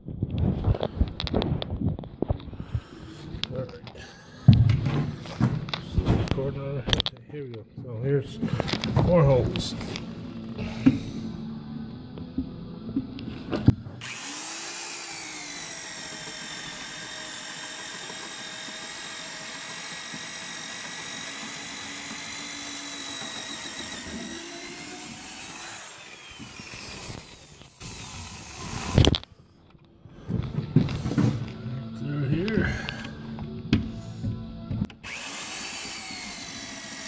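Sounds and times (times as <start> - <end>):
electric drill boring into wood: 14.0 - 29.3, 34.9 - 37.0.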